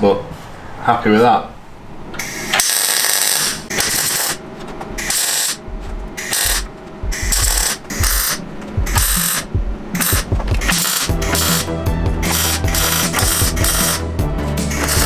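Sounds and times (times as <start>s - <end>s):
welding arc crackling: 2.2s - 4.4s, 5.0s - 5.6s, 6.2s - 15.0s.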